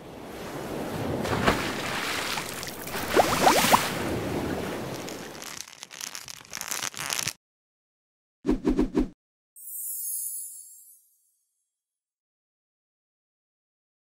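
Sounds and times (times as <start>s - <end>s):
ocean waves splashing: 0.0s - 5.6s
crackly water spatters: 1.2s - 7.4s
bubbly rising tones: 3.0s - 3.8s.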